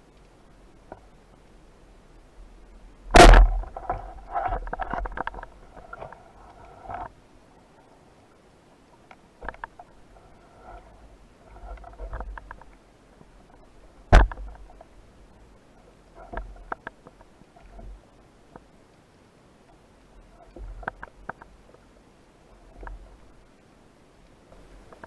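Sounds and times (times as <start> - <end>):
underwater water rushes: 1.8 - 8.8, 9.4 - 18.6
speargun firing underwater: 3.1 - 4.0.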